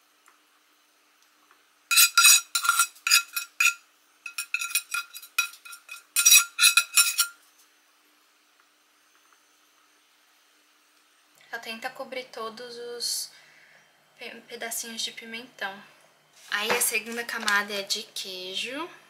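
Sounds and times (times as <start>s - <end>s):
metal utensil scraping dish: 1.9s - 7.4s.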